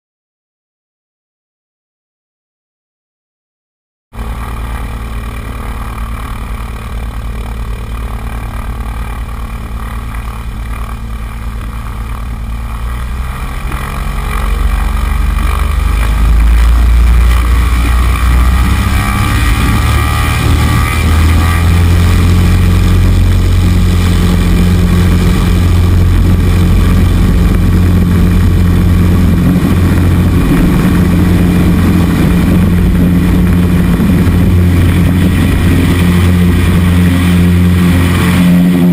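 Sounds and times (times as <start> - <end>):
light aircraft propeller engine: 4.2 - 38.9.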